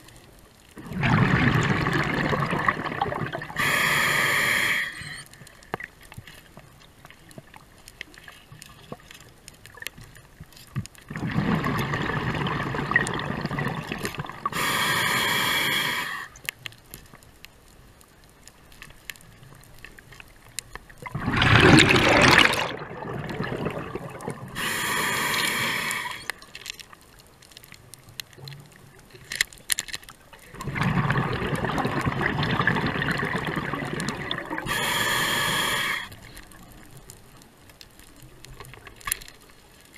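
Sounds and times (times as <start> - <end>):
exhaled bubbles rushing: 0.8 - 3.6, 11.1 - 14.5, 21.0 - 24.6, 30.5 - 34.7
regulator hissing inhalation: 3.6 - 5.2, 14.5 - 16.4, 24.5 - 26.3, 34.6 - 36.2.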